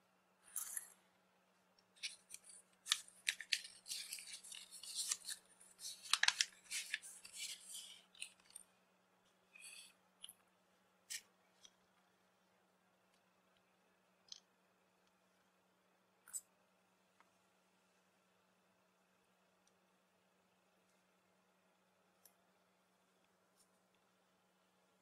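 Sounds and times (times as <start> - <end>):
paper packet crinkling: 2.0 - 8.7.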